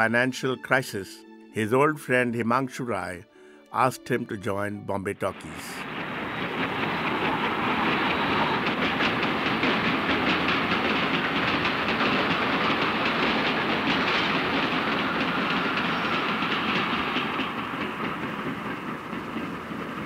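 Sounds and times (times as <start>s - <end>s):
train wheels clattering over rails: 5.8s - 20.0s.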